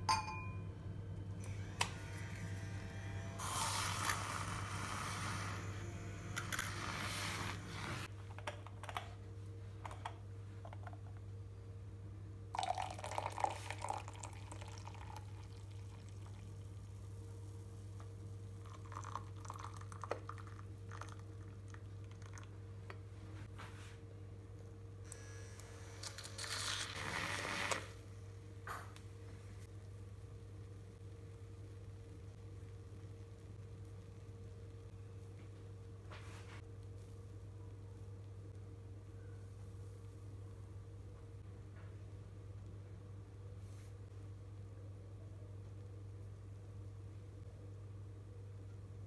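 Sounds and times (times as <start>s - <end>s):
jug and glass clinking: 0.0s - 0.6s
steady low hum: 0.0s - 26.2s
electric milk frother whirring: 1.4s - 8.1s, 25.1s - 28.0s
milk pouring: 12.5s - 17.2s, 18.0s - 23.0s.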